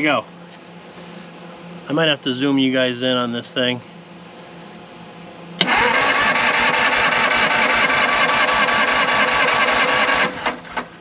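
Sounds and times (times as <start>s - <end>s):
engine cranked by starter: 5.6s - 11.0s.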